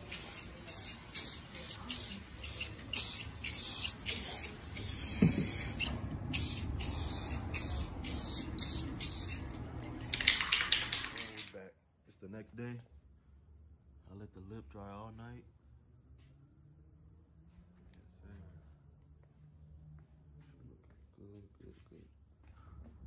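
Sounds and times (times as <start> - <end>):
aerosol spray can hissing: 0.0 - 11.1.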